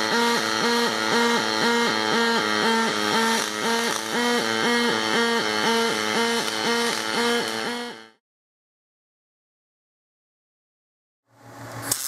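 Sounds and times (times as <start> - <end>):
welding arc buzzing: 0.0 - 8.2, 11.3 - 12.0.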